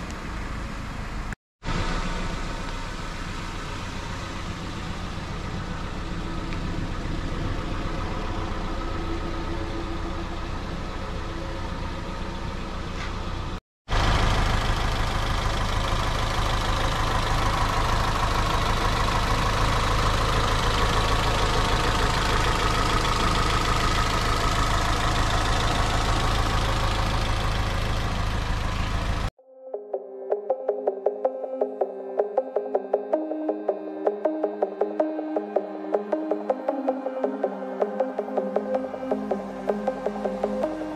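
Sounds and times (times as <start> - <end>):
car engine idling: 0.0 - 29.3.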